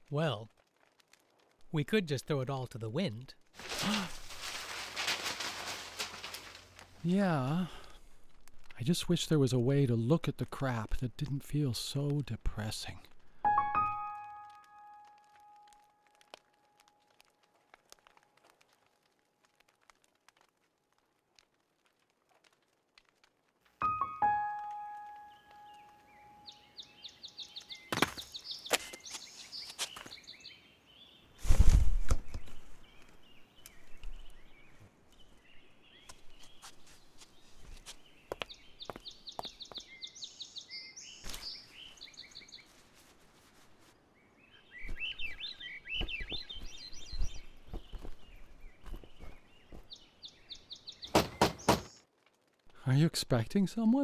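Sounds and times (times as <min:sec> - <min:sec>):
piano note: 0:13.5 - 0:15.9, 0:23.8 - 0:26.0
birds singing: 0:25.2 - 0:31.4, 0:32.2 - 0:42.7, 0:44.0 - 0:52.0
sharp knocks: 0:51.1 - 0:51.9.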